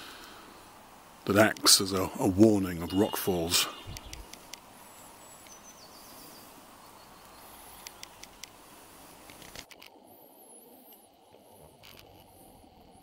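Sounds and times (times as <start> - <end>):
small birds calling: 0.0 - 9.6
steady hiss: 0.0 - 13.0
light clicks: 3.9 - 4.7, 7.2 - 8.6.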